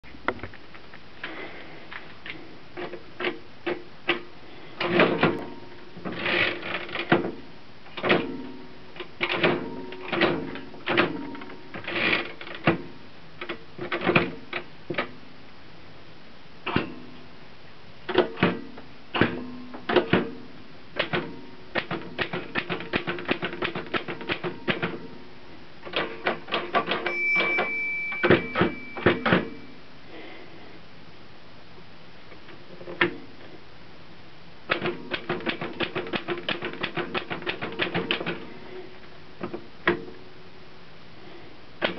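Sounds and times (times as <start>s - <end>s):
typewriter keys clacking: 21.0s - 25.0s, 34.7s - 38.4s
typewriter margin bell ringing: 27.0s - 29.8s.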